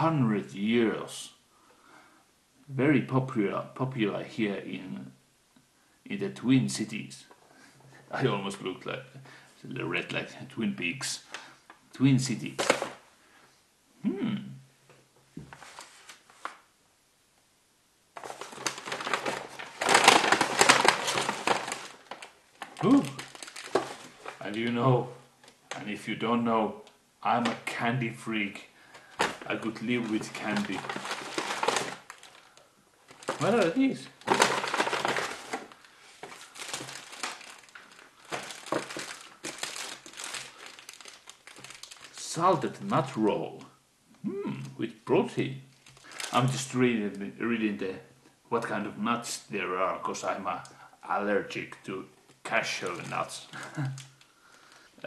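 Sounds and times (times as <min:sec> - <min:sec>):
paper bag crinkling: 0:12.4 - 0:13.0, 0:15.5 - 0:16.6, 0:18.2 - 0:25.9, 0:28.3 - 0:43.3, 0:45.7 - 0:46.8, 0:52.5 - 0:54.9.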